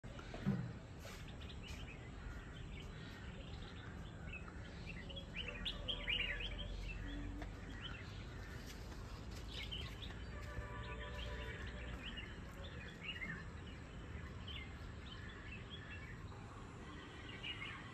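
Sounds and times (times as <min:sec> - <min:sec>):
songbirds chirping: 0:00.0 - 0:17.9.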